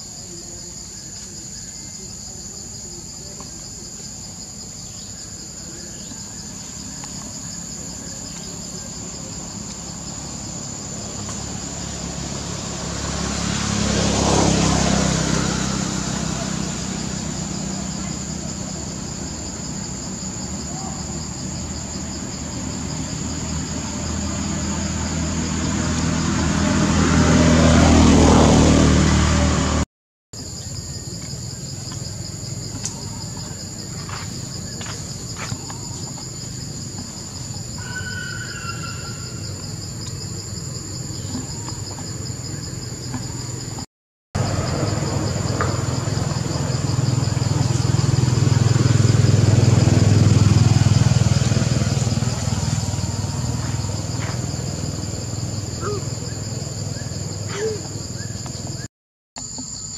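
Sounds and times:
insect drone: 0.0 - 29.8, 30.4 - 59.9
vehicle passing: 6.5 - 29.8, 38.5 - 58.8.

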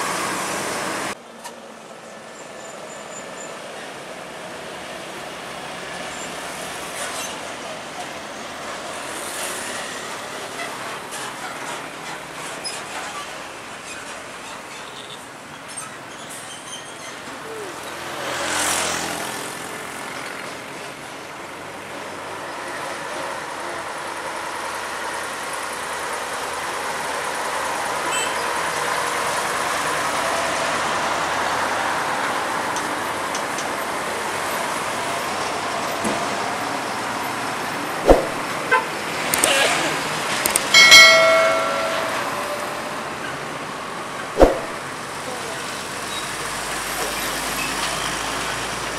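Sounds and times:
trucks passing on highway: 0.0 - 48.9
sharp knock: 38.0 - 38.4, 40.8 - 42.5, 44.4 - 44.8.

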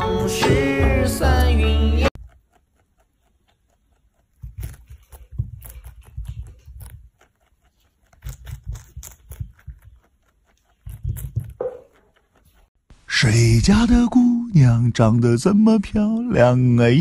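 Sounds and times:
rabbit chewing lettuce: 0.0 - 12.8.

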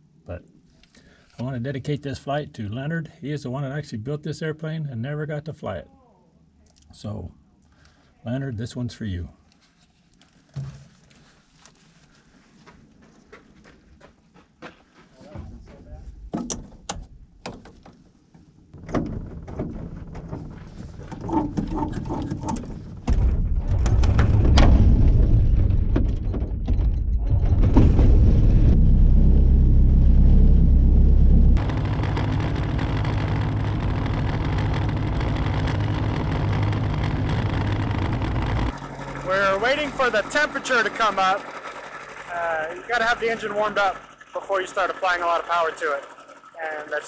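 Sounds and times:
cockpit controls clicking and rattling: 16.4 - 24.4, 31.6 - 47.0
propeller turning: 18.7 - 47.0
snowmobile engine starting: 27.3 - 47.0.

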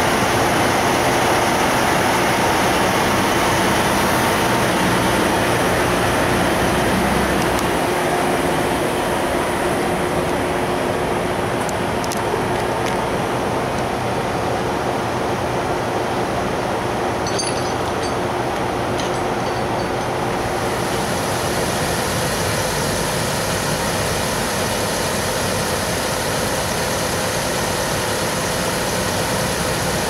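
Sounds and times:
diesel truck engine idling: 0.0 - 17.2.

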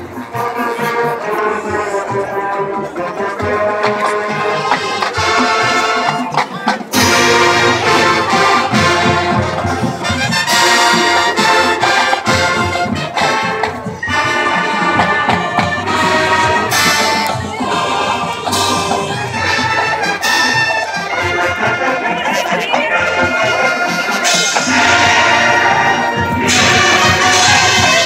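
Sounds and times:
marching band brass: 0.0 - 28.0
marching band percussion: 0.0 - 28.0.

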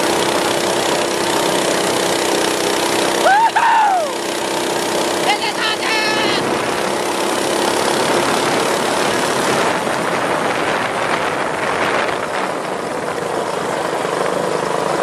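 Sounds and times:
minibike engine running: 0.0 - 15.0
wind and road noise: 0.0 - 15.0.

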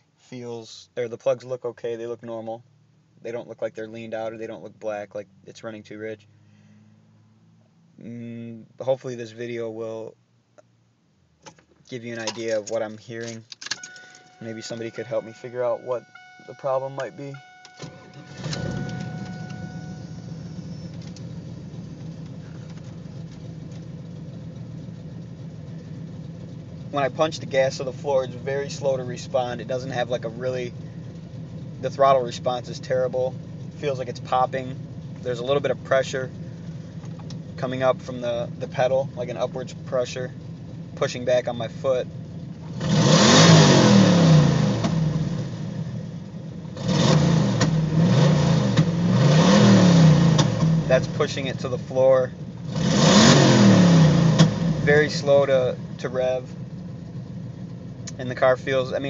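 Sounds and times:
engine idling unevenly: 13.9 - 42.7, 53.7 - 59.0.

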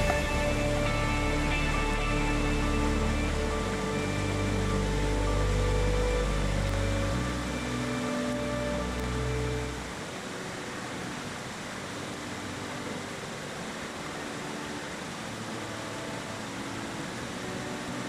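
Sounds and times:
background music: 0.0 - 18.0
steady rushing noise: 0.0 - 18.0.

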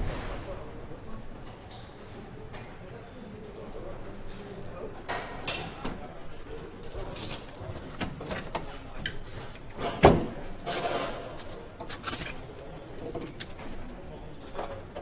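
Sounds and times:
loud knock: 0.0 - 0.7.

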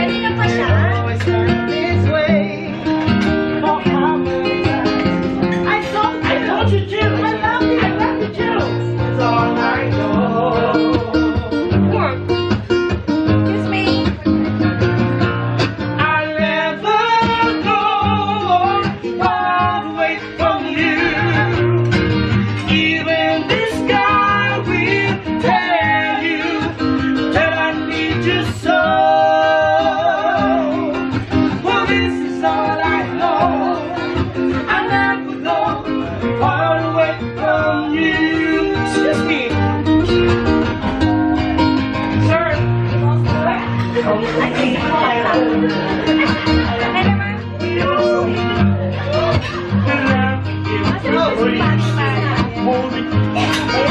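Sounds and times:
person singing with vibrato: 0.0 - 11.9, 16.0 - 41.9
strummed acoustic guitar: 0.0 - 53.9.

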